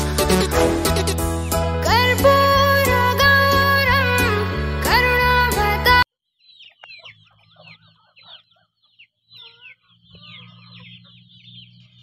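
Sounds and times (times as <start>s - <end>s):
chickens chirping: 0.0s - 4.0s, 5.9s - 12.0s
chickens clucking: 6.2s - 12.0s.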